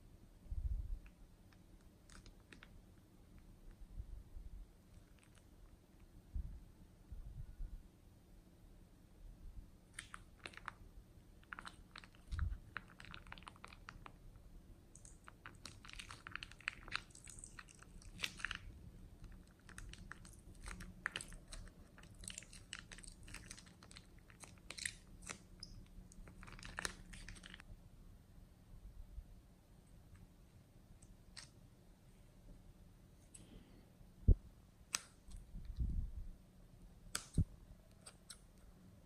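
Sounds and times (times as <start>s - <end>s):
slime wet crackling and popping: 1.0s - 3.5s, 4.9s - 6.1s, 9.8s - 27.7s, 31.0s - 31.6s, 34.8s - 35.8s, 37.0s - 38.6s.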